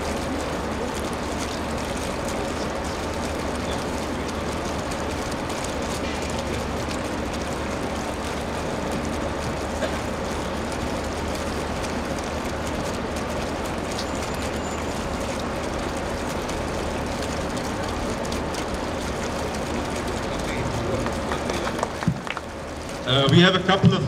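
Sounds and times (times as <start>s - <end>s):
crowd chatter: 0.0s - 5.2s, 5.8s - 7.2s, 16.8s - 22.4s
crowd clapping: 0.0s - 24.0s.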